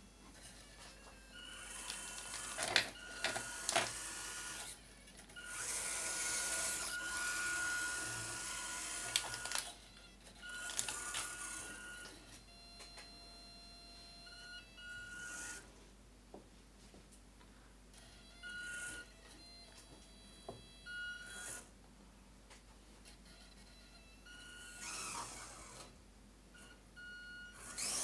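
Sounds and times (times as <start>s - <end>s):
toy car motor whirring: 1.4s - 4.8s, 5.4s - 9.8s, 10.4s - 12.0s, 15.1s - 15.6s, 21.2s - 21.7s, 24.6s - 25.9s, 27.6s - 28.0s.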